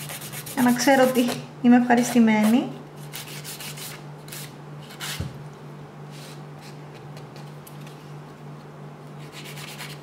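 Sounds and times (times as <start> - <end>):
faint steady hum: 0.0 - 10.0
nail file rubbing on fingernails: 9.2 - 10.0.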